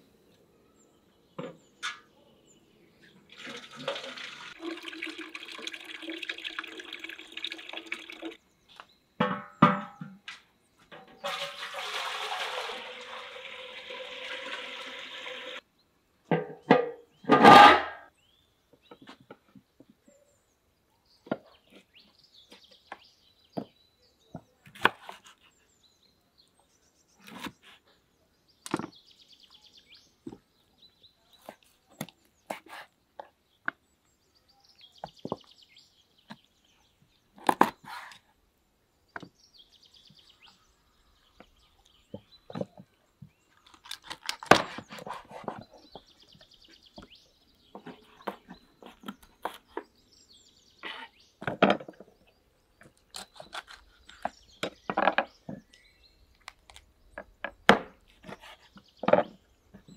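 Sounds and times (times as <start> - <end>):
birds chirping: 18.0 - 59.9.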